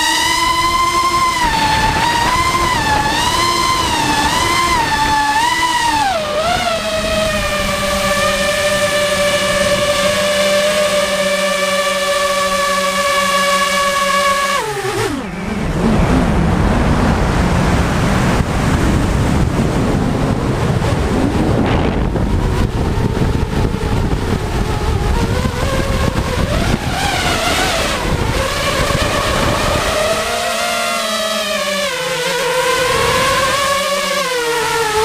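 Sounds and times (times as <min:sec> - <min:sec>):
drone motors whining: 0:00.0 - 0:35.0
wind rushing: 0:00.5 - 0:10.2, 0:14.6 - 0:30.3.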